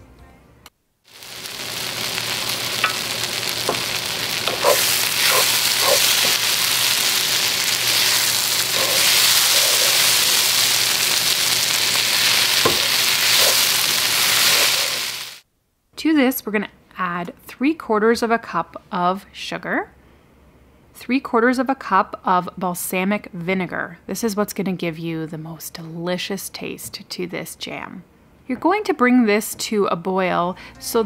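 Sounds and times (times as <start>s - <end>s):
onions sizzling in oil: 1.1s - 15.4s
wooden spoon scraping pan: 3.6s - 6.5s, 7.8s - 10.5s.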